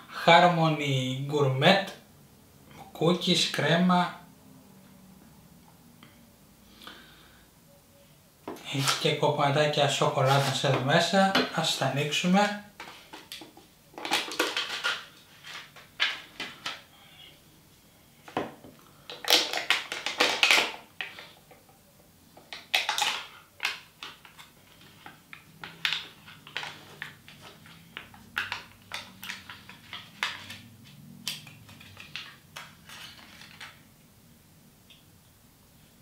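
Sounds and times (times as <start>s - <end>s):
plastic packaging crinkling: 14.0s - 16.8s, 19.1s - 21.4s, 22.5s - 33.9s.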